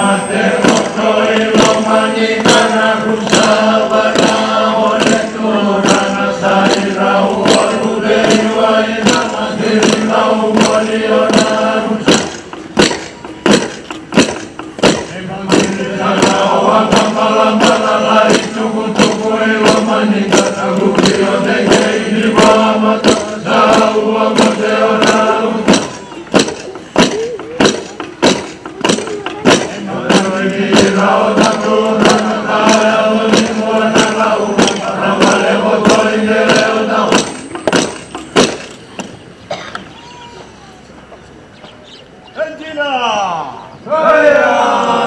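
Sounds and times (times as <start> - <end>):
men chanting in unison: 0.0 - 12.4, 14.9 - 26.3, 29.4 - 37.4, 43.8 - 45.0
hand claps: 0.6 - 39.1.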